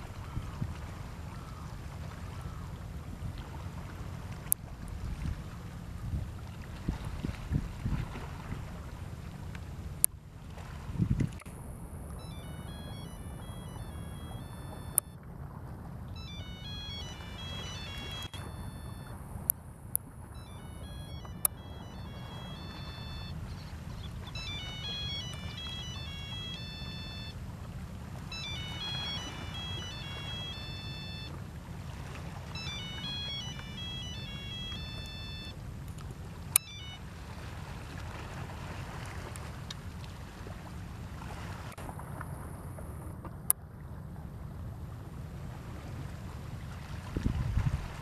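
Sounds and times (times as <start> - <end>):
phone ringtone melody: 12.2 - 15.2, 16.2 - 19.3, 20.3 - 27.4, 28.2 - 31.4, 32.5 - 35.6, 36.6 - 37.1.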